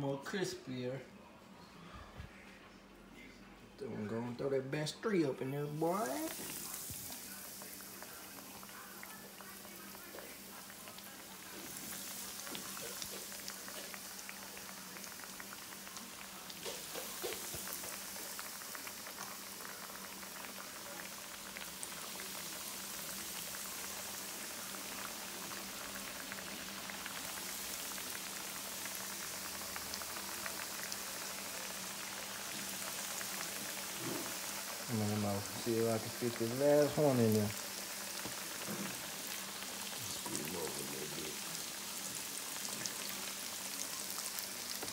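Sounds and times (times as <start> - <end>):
fish sizzling in hot oil: 5.5 - 44.9.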